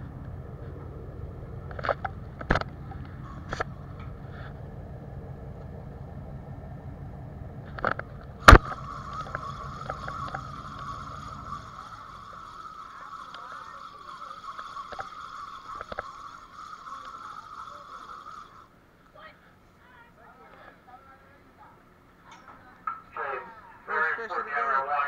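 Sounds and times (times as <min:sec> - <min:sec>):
boat engine humming: 0:00.0 - 0:19.1
steady higher hum: 0:00.0 - 0:25.0.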